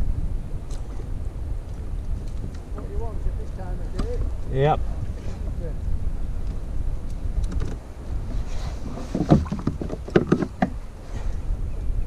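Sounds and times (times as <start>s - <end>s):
wind rumble on microphone: 0.0s - 12.0s
fishing tackle knocking on hull: 9.1s - 10.8s.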